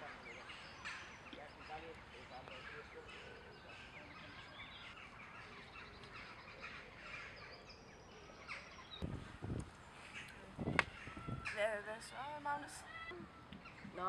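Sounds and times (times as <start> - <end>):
birds chirping and singing: 0.0 - 14.0
short low thuds: 9.0 - 9.7.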